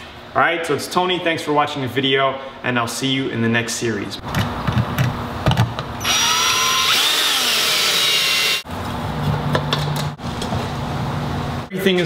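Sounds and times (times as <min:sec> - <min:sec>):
cordless drill motor whining: 0:06.0 - 0:08.6.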